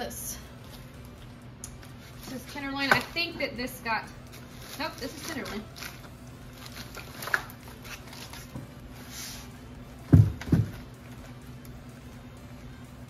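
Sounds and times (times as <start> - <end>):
plastic bag rustling: 4.2 - 9.4
dull thumps of frozen packages: 10.1 - 10.9.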